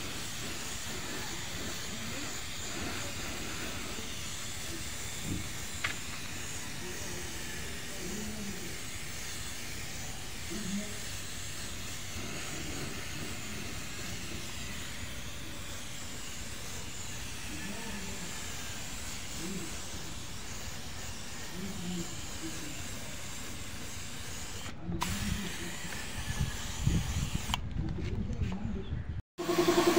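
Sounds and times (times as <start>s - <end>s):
paint spray gun hissing: 0.0s - 27.6s, 29.4s - 29.9s.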